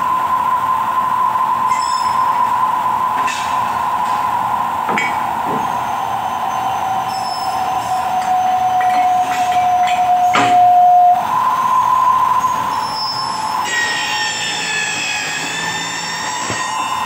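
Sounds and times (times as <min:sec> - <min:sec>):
lower whine: 0:00.0 - 0:17.0
milling machine motor whine: 0:03.9 - 0:17.0.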